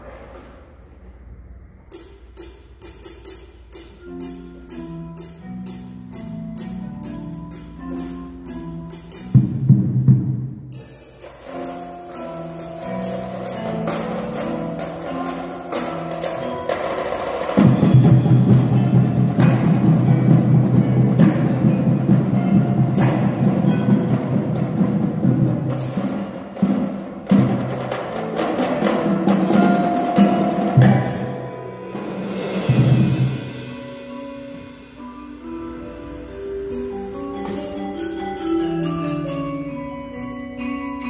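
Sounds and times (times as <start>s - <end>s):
tenor drums: 0.0s - 41.0s
snare drums: 1.9s - 33.9s
bass drums: 9.2s - 10.8s, 17.5s - 28.2s.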